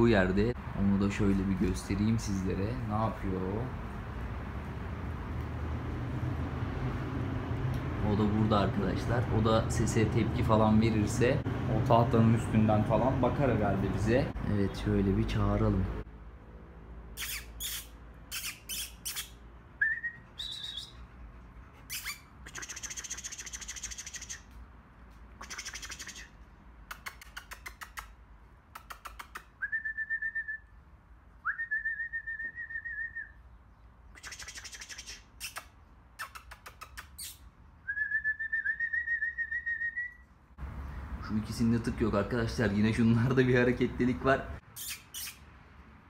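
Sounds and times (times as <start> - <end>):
mouth clicking and smacking: 17.2 - 19.4, 21.8 - 24.6, 25.3 - 29.8, 34.2 - 37.5, 44.7 - 45.4
person whistling: 29.6 - 30.6, 31.4 - 33.3, 37.9 - 40.2.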